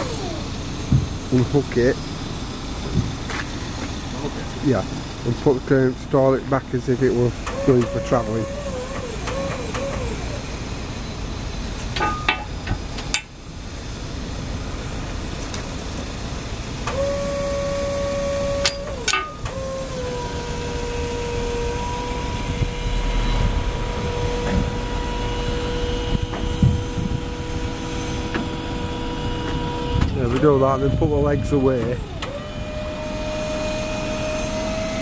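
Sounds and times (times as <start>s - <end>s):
crane hydraulics whining: 0.0s - 35.0s
low engine rumble: 0.0s - 35.0s
sharp clicks and knocks: 11.8s - 13.3s, 18.6s - 19.6s.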